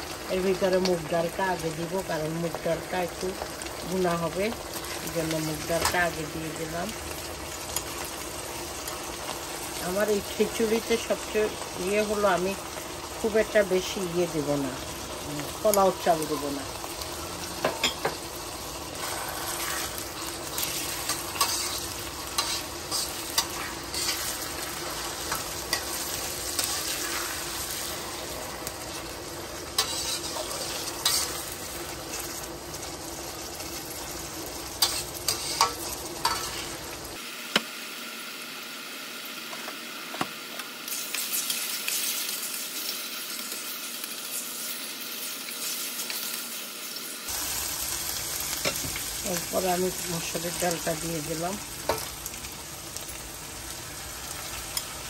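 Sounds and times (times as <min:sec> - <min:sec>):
oil sizzling in a pan: 0:00.0 - 0:55.0
metal spatula scraping a pan: 0:18.9 - 0:27.7, 0:29.7 - 0:31.5, 0:34.8 - 0:36.8.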